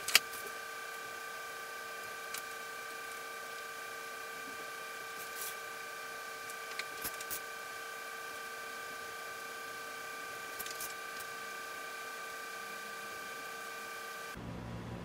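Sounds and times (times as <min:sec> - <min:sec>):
steady background hum: 0:00.0 - 0:15.0.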